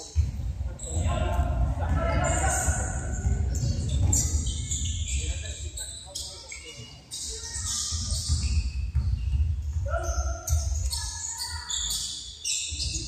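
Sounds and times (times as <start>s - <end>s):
basketball bouncing on court: 0.0s - 5.5s, 7.5s - 12.1s
voices of players and spectators: 0.0s - 13.0s.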